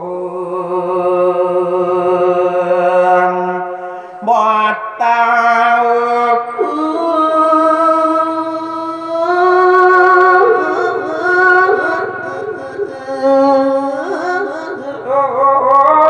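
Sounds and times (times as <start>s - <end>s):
bending melody: 9.0s - 16.0s.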